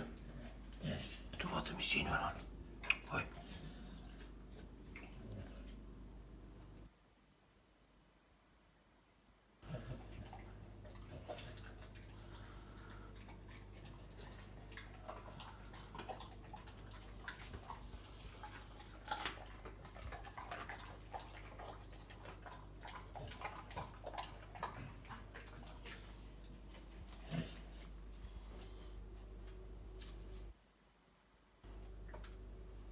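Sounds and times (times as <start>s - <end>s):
dog chewing bones: 9.6s - 27.8s.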